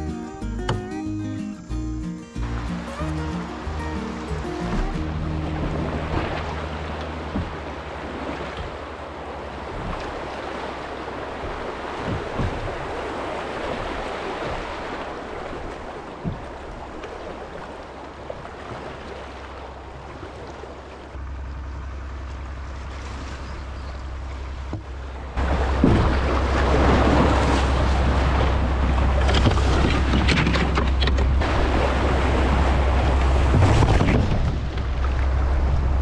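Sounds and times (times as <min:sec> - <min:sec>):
rushing river rapid: 0:00.7 - 0:21.2, 0:24.2 - 0:36.0
short knocks: 0:07.3 - 0:07.8
low wind rumble on microphone: 0:19.7 - 0:36.0.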